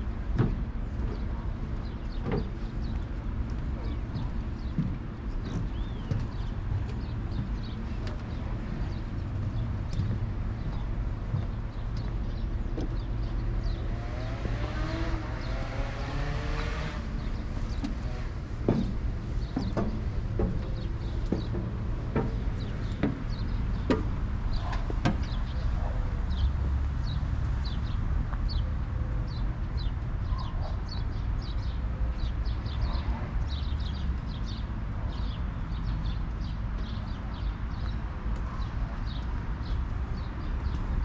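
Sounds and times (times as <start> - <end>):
steady low rumble: 0.0 - 29.9
small birds chirping: 1.0 - 28.7, 29.3 - 41.0.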